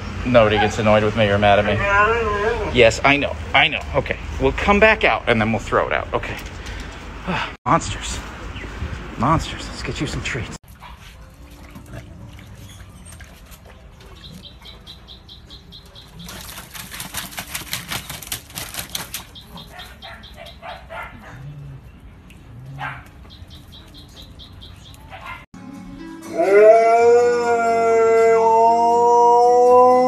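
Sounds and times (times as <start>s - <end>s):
dogs lapping water from metal bowl: 10.6s - 14.7s, 16.1s - 19.6s.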